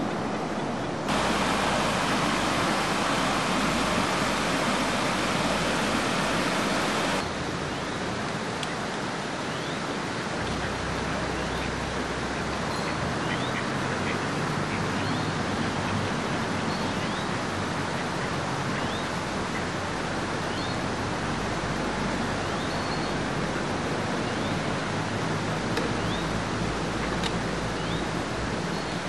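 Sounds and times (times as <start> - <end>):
steady rushing noise: 0.0 - 9.3.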